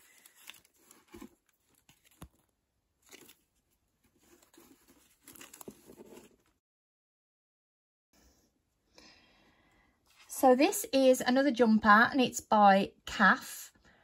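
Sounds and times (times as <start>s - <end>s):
tissue paper rustling: 0.0s - 6.6s.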